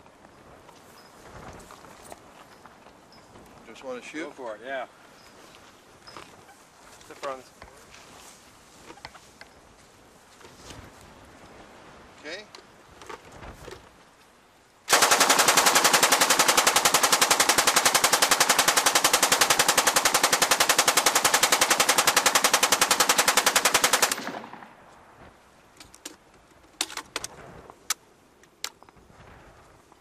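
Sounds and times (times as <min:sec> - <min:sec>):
machine gun automatic burst: 0:14.9 - 0:24.7.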